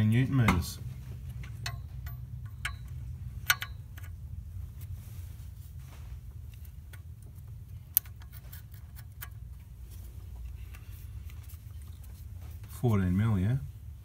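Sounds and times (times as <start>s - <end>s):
steady low hum: 0.0s - 14.0s
light ticks of wrench: 1.6s - 4.2s.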